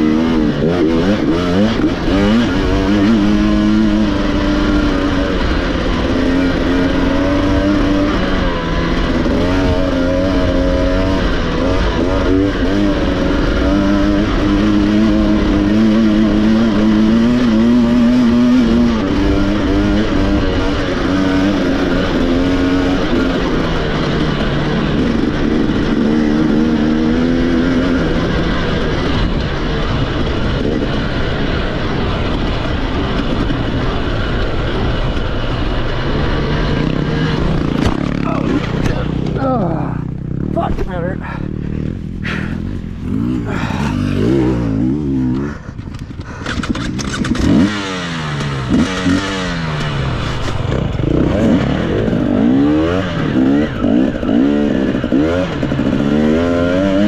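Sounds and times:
racing motorcycle engine revving: 0:00.0 - 0:57.0.

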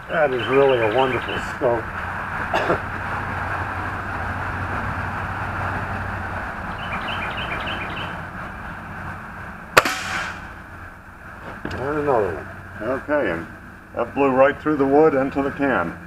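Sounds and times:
air rifle shot: 0:09.8 - 0:10.6.

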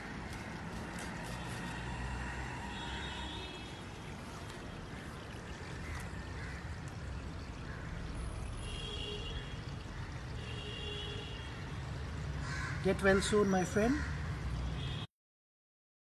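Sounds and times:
outdoor background noise: 0:00.0 - 0:15.1.

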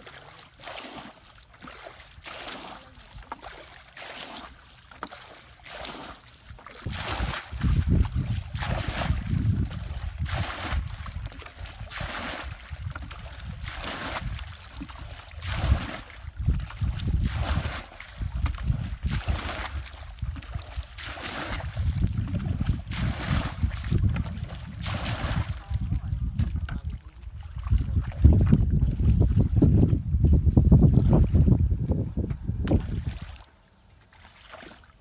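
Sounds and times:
water splashing from bucket: 0:00.0 - 0:29.8, 0:32.6 - 0:33.5, 0:34.2 - 0:35.0
wind buffeting microphone: 0:06.8 - 0:33.4.

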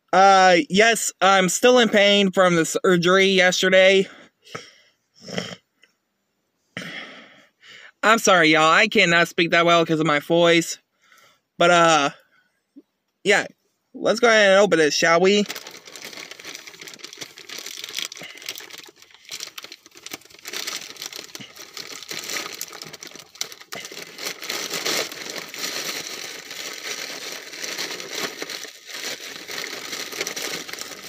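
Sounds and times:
plastic bag crinkling: 0:15.2 - 0:31.0.

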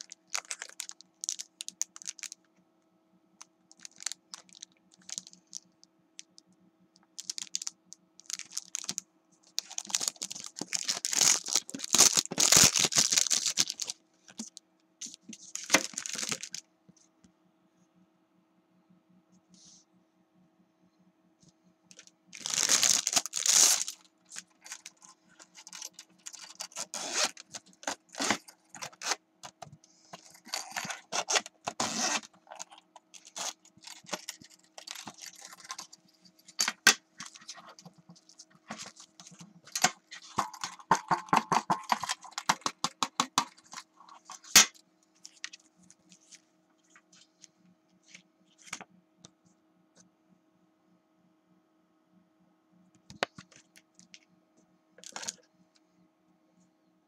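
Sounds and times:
plastic packaging crinkling: 0:00.0 - 0:02.4, 0:03.7 - 0:06.4, 0:07.1 - 0:16.6, 0:21.9 - 0:48.8, 0:55.0 - 0:55.4.

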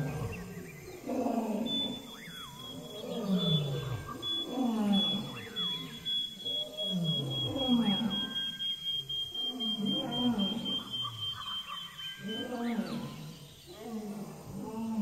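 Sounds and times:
large animal roaring: 0:00.0 - 0:02.0.

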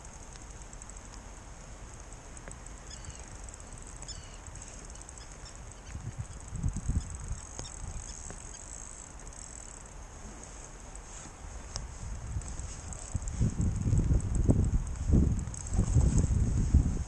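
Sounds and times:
wind buffeting microphone: 0:05.4 - 0:08.5, 0:11.6 - 0:17.0.

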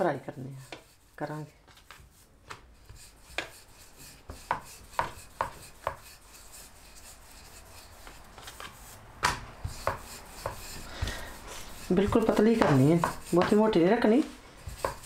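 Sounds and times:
rolling pin rubbing dough: 0:00.2 - 0:15.0
rolling pin knocking on board: 0:04.3 - 0:06.0, 0:09.2 - 0:10.6, 0:12.0 - 0:13.6.

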